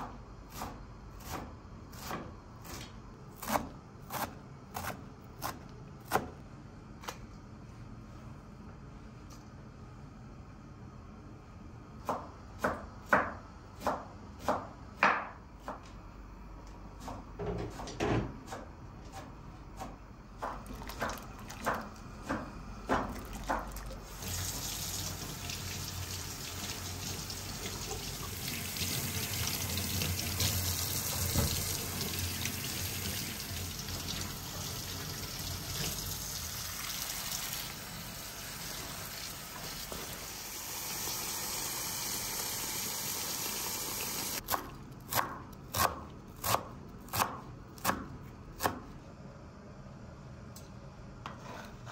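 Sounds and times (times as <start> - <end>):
knife chopping on wooden board: 12.0 - 15.8, 44.5 - 48.9
tap water running into sink: 23.3 - 37.8, 38.6 - 44.4.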